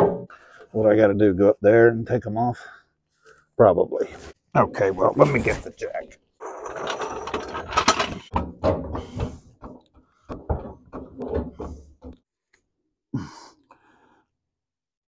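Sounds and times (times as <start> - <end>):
tools knocking and clattering: 0.0 - 0.3, 6.4 - 12.2.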